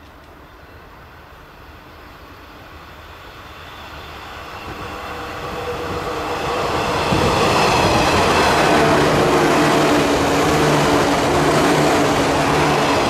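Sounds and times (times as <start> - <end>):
electric train running past: 0.0 - 13.0
train whine: 0.0 - 13.0.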